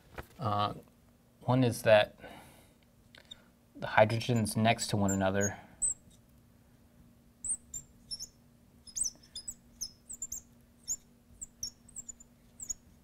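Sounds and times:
marker squeaking on glass: 4.2s - 6.2s, 7.4s - 13.0s.

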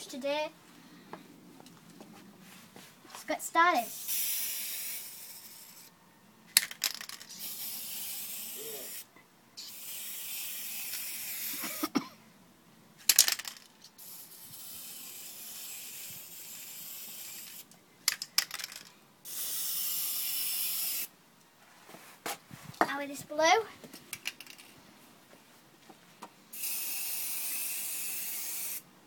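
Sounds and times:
spray paint can hissing: 3.8s - 5.9s, 6.8s - 11.8s, 13.1s - 17.7s, 19.2s - 21.1s, 26.5s - 28.9s.

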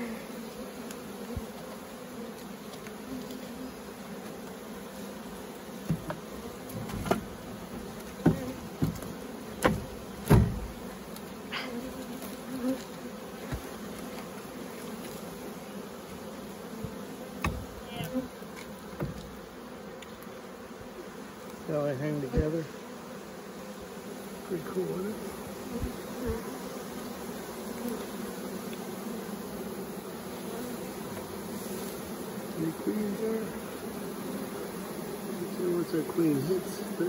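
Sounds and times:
honeybee swarm buzzing: 0.0s - 37.0s
firewood knocking on metal cage: 9.6s - 10.7s.

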